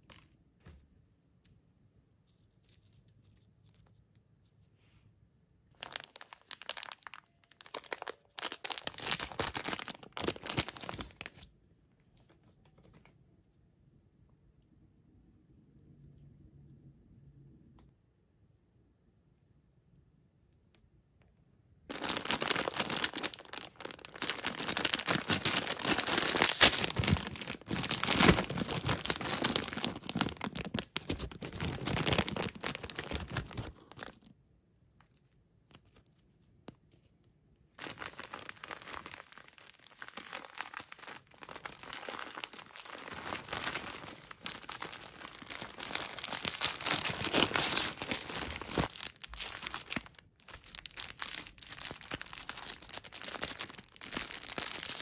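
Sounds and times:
plastic wrappers crinkling: 0:05.7 - 0:11.5, 0:21.9 - 0:34.3, 0:37.8 - 0:55.0.

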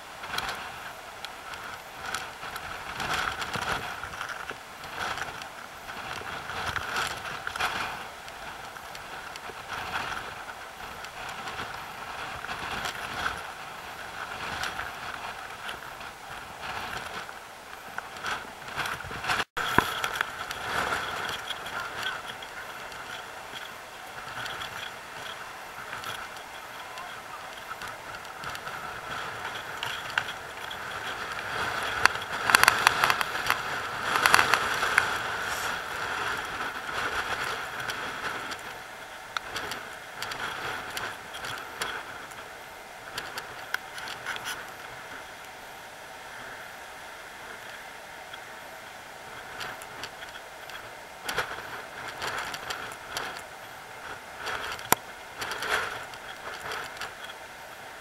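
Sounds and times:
surf breaking over rocks: 0:00.0 - 0:58.0.

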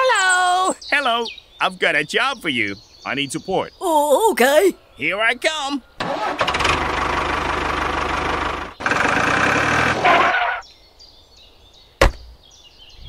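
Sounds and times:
tractor engine running: 0:06.0 - 0:10.4.

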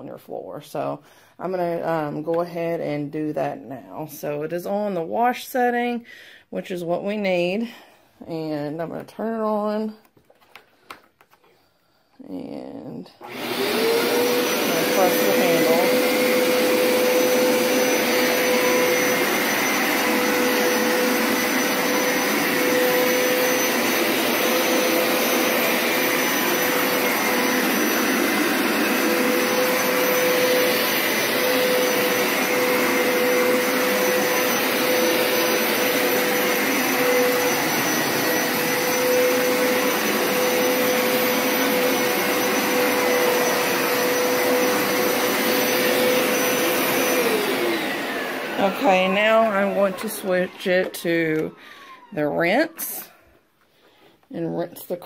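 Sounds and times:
carpet washer motor whirring: 0:13.2 - 0:52.5.

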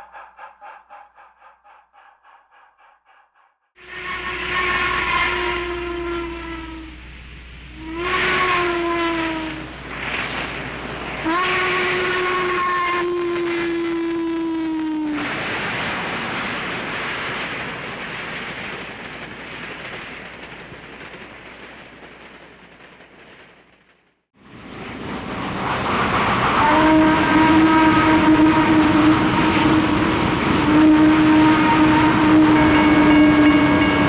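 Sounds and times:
steady whistle-like tone: 0:00.0 - 0:07.0
steam locomotive rushing: 0:00.0 - 0:34.0.

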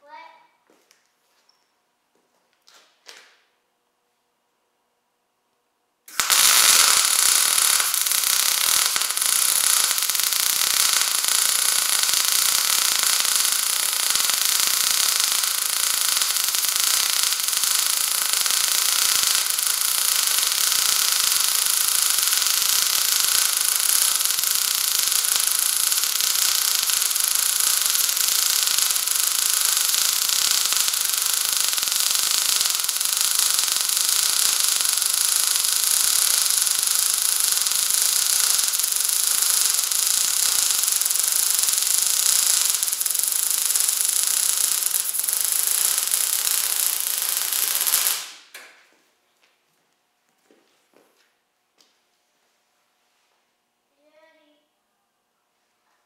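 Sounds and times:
welding arc crackling: 0:06.1 - 0:49.0.

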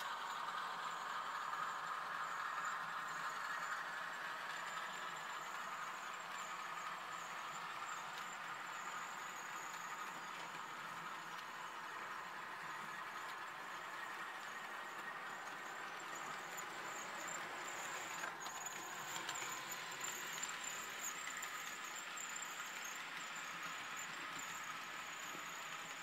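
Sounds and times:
model train wheels rolling: 0:00.0 - 0:26.0.

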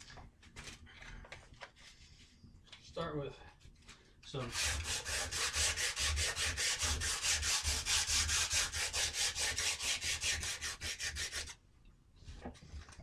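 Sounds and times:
sandpaper scrubbing wood: 0:04.4 - 0:11.6.

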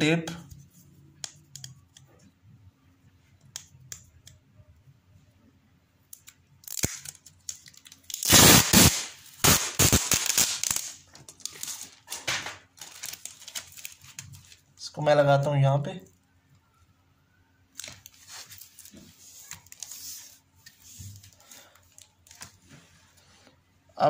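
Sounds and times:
adhesive tape peeled off roll: 0:06.2 - 0:14.6.

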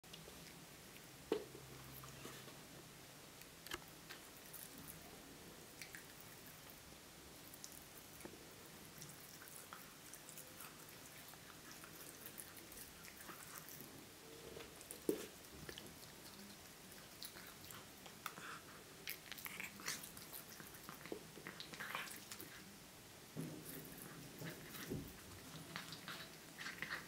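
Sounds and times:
cat chewing food: 0:05.7 - 0:06.8, 0:07.4 - 0:22.8, 0:23.4 - 0:27.0.

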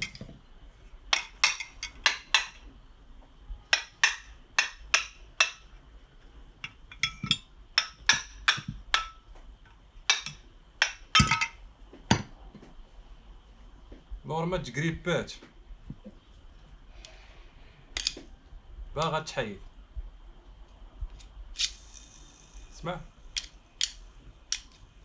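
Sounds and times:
hammer tapping on metal: 0:03.7 - 0:05.7, 0:06.6 - 0:09.4.

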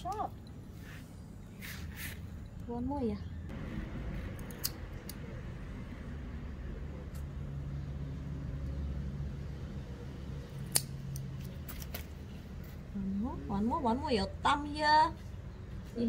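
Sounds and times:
nail clipper clicking: 0:04.4 - 0:05.2, 0:10.6 - 0:11.3.

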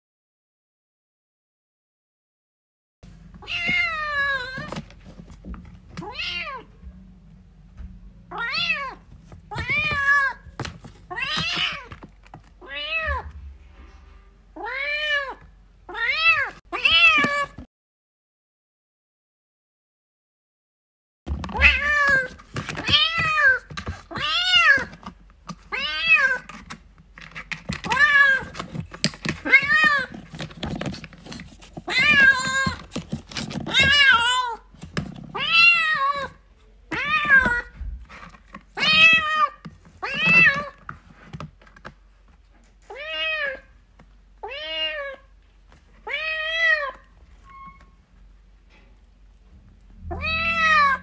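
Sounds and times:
cat meowing loudly: 0:21.5 - 0:24.9, 0:50.0 - 0:51.0.

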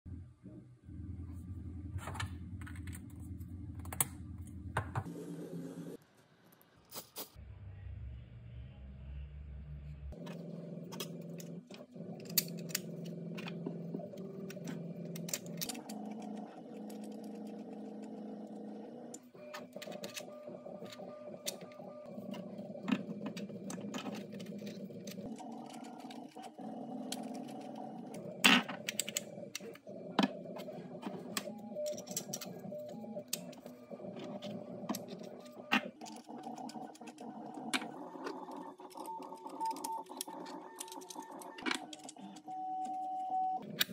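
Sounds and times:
plastic parts clicking and rattling: 0:19.4 - 0:43.9.

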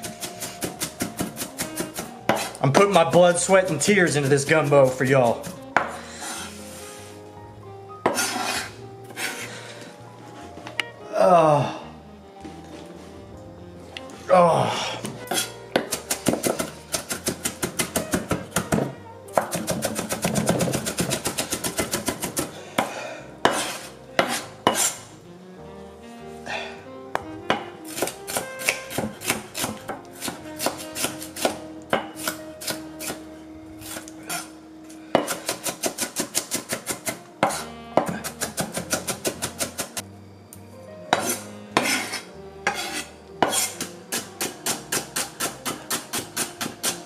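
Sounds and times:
knife chopping on cutting board: 0:00.0 - 0:02.9, 0:08.0 - 0:09.4, 0:15.3 - 0:25.0, 0:27.5 - 0:33.2, 0:35.2 - 0:39.9, 0:41.2 - 0:47.0.

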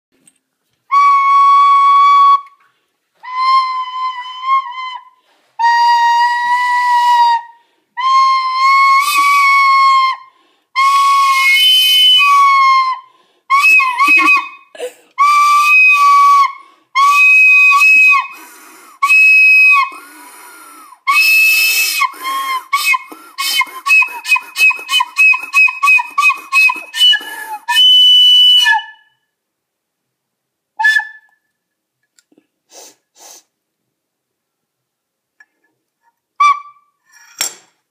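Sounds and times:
high-pitched breathy whistling: 0:02.4 - 0:29.2.

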